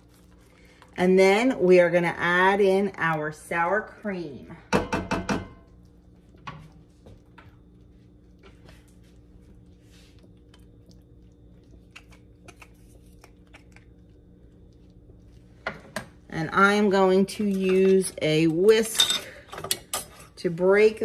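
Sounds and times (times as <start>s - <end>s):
sauce simmering in skillet: 5.6s - 12.5s.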